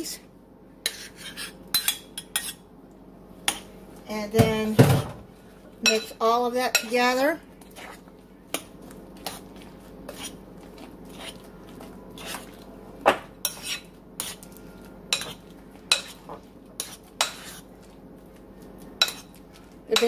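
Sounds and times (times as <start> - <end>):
spoon scraping a bowl: 0.8 - 2.6, 10.1 - 11.5, 12.1 - 12.6, 13.4 - 17.7.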